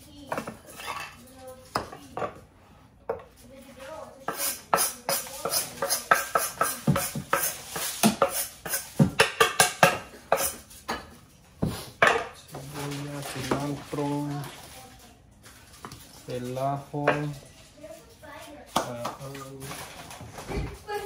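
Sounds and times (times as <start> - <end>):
dishes clinking: 0.3 - 2.4, 4.3 - 13.8.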